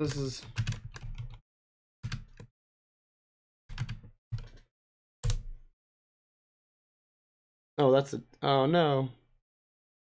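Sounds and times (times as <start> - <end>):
computer keyboard typing: 0.1 - 1.4, 2.0 - 2.5, 3.7 - 5.5.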